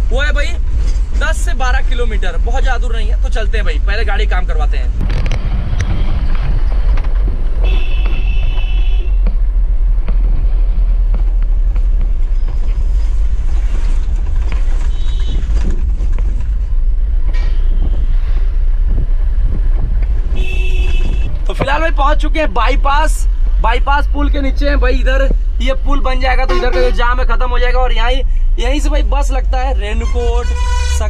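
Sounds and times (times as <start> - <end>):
engine and road rumble in cab: 0.0 - 31.0
vehicle horn: 7.6 - 9.2, 20.4 - 21.3, 26.5 - 27.1, 30.0 - 31.0.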